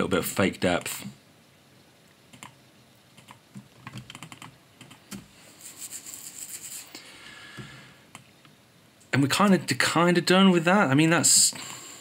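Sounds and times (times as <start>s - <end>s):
keyboard keys clicking: 3.2s - 5.2s
scratchy rubbing: 5.5s - 7.0s.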